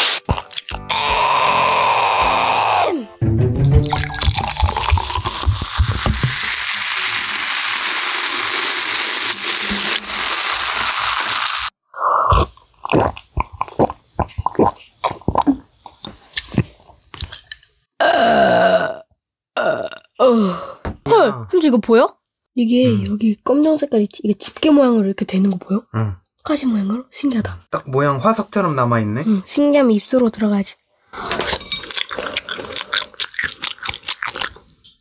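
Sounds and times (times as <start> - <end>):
gulping and swallowing: 3.8 - 5.8, 12.0 - 15.6, 31.8 - 34.6
carbonation fizzing hiss: 4.0 - 11.7.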